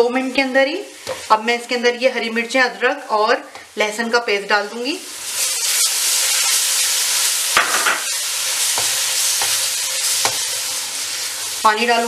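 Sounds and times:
paste sizzling in hot fat: 0:04.6 - 0:12.0.

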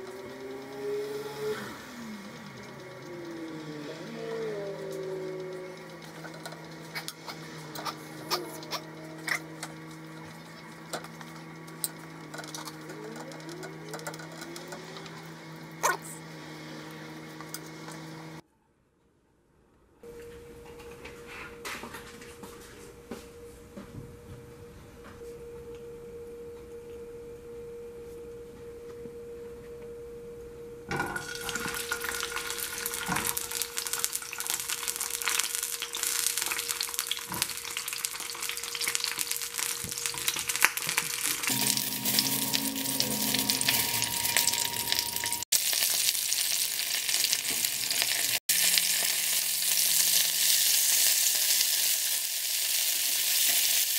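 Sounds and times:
vegetables sizzling in hot oil: 0:31.2 - 0:53.9
steady hum: 0:41.4 - 0:45.5.

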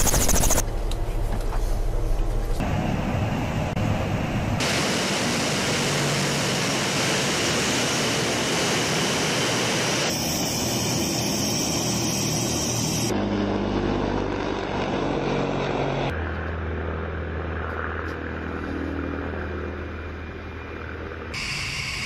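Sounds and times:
jet engines on takeoff roll: 0:00.0 - 0:22.0
turboprop engines and propellers: 0:00.0 - 0:22.0.

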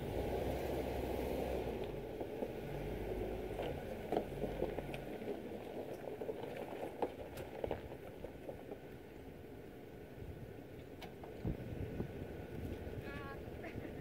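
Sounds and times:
tyres crunching on stones: 0:02.0 - 0:09.1.

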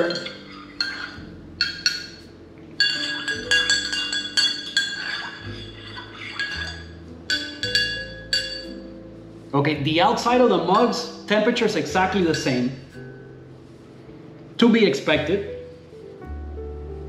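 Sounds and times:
spoon clinking in ceramic mug: 0:00.0 - 0:02.2, 0:02.8 - 0:08.8.

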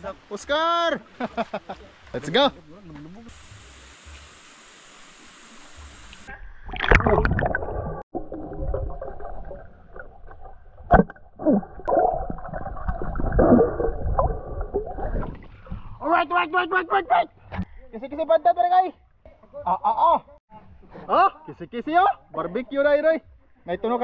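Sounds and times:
muffled underwater churning water: 0:05.9 - 0:16.0.

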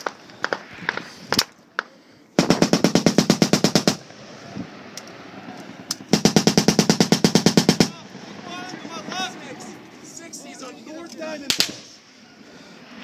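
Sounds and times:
automatic gunfire: 0:02.4 - 0:04.0, 0:06.1 - 0:08.0.

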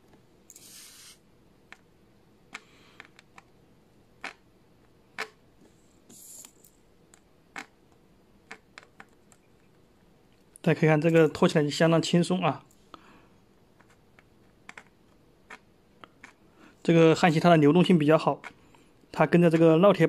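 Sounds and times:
flux hissing: 0:00.5 - 0:01.2.

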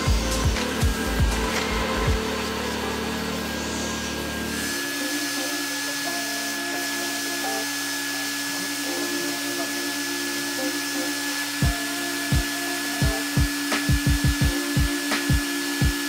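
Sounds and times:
low hum: 0:00.0 - 0:04.8
carpet extractor motor whine: 0:00.0 - 0:16.0.

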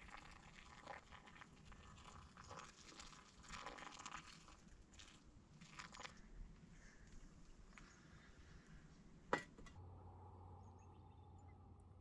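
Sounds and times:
water pouring from kettle: 0:00.0 - 0:06.2
small crackly sounds: 0:00.0 - 0:08.4.

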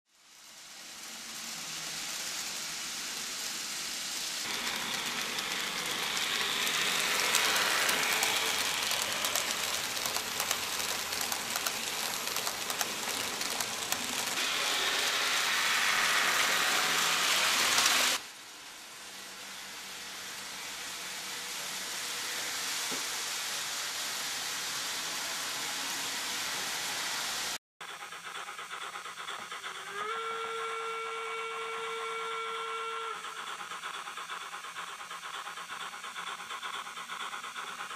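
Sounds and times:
steady hissing rush: 0:00.2 - 0:27.6.

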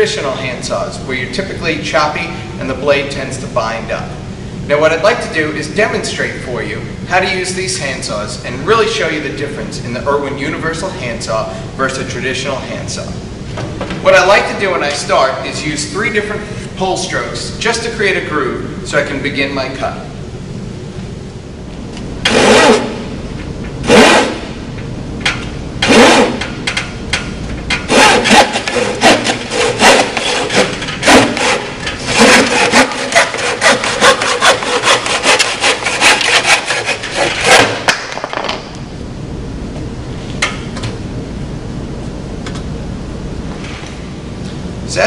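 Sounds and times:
handsaw cutting wooden board: 0:22.3 - 0:23.0, 0:23.8 - 0:24.4, 0:25.8 - 0:26.4, 0:27.9 - 0:37.8.

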